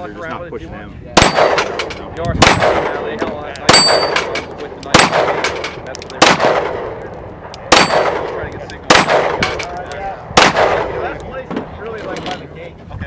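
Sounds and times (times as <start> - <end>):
pistol shots with long echo: 1.2 - 7.0, 7.6 - 9.6, 10.3 - 11.2.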